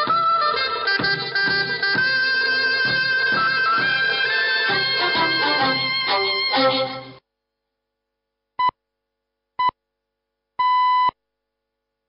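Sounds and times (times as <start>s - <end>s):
theme music: 0.9s - 7.2s.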